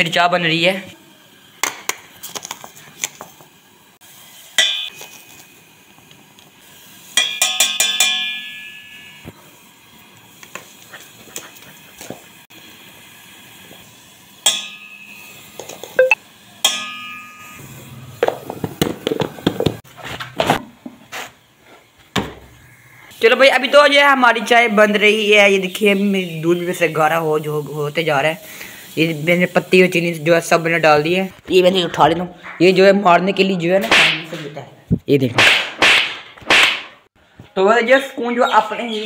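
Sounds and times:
metal spoon clinking against pot: 7.2 - 8.8.

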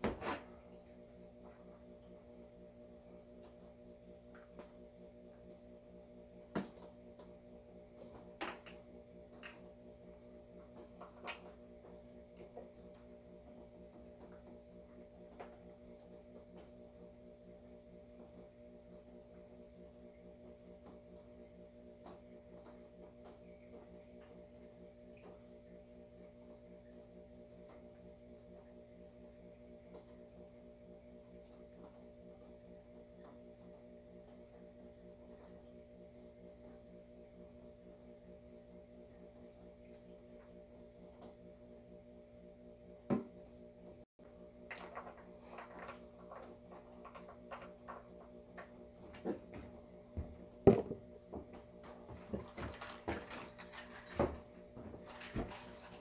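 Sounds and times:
faint electrical hum: 0.0 - 56.0
plastic bottle and parts rattling: 44.7 - 48.3.

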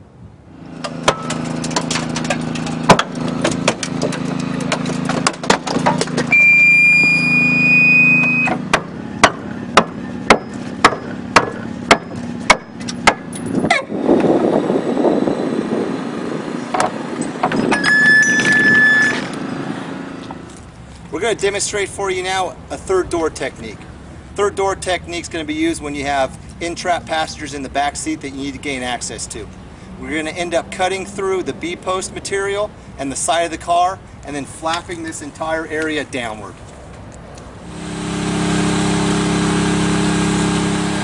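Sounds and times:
hydraulic power unit running: 0.4 - 20.8, 37.6 - 41.0
metal creaking and popping: 0.8 - 6.4, 16.7 - 19.4
high squeal: 6.3 - 11.2, 17.6 - 19.6
sharp metal strikes: 8.5 - 13.6.

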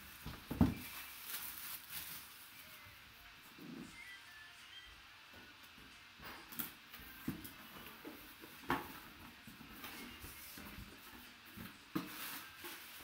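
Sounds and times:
tissue paper rustling: 0.0 - 2.8, 12.0 - 13.0.

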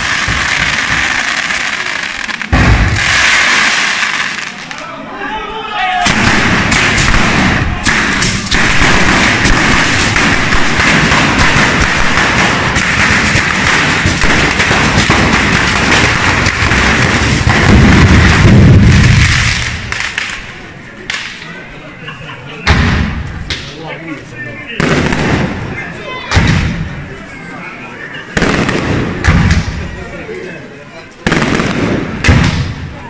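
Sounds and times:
firecrackers crackling: 0.0 - 5.0, 6.0 - 21.5, 24.8 - 27.0, 28.3 - 30.1, 31.2 - 33.0.

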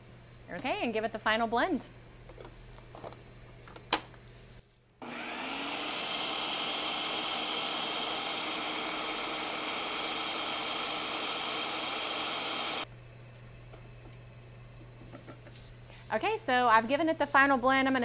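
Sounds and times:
blender motor whining: 5.0 - 12.9.

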